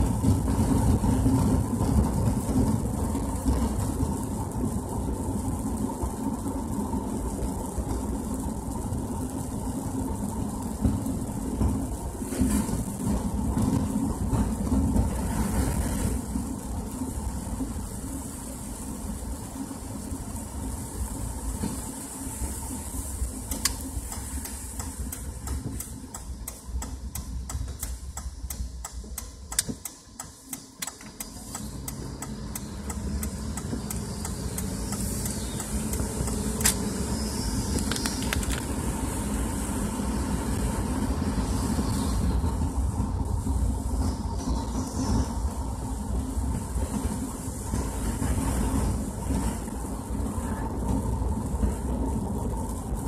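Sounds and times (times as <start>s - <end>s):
car engine and tyres rumbling: 0.0s - 53.0s
hiss of tyre spray: 0.0s - 53.0s
raindrops ticking on windshield: 22.9s - 36.9s.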